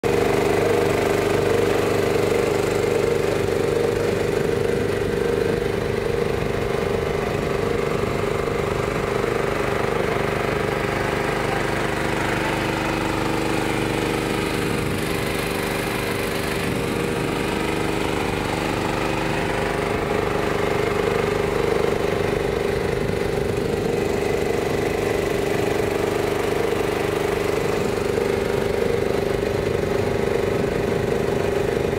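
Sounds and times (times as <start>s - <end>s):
outboard motor humming: 0.0s - 31.9s.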